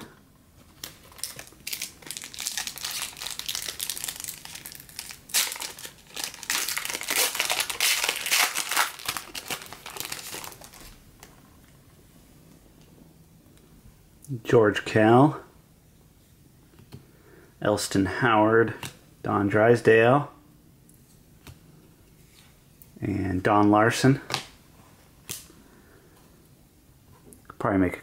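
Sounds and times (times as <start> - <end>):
foil wrapper crinkling: 0.7 - 11.3.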